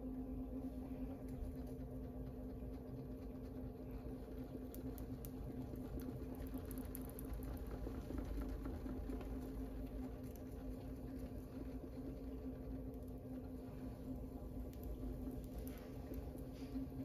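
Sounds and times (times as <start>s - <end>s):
pottery wheel motor humming: 0.0s - 17.0s.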